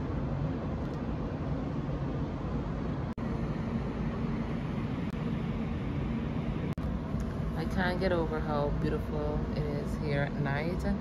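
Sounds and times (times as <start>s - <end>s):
faint hum: 0.0s - 11.0s
low rumble of city traffic: 0.0s - 11.0s.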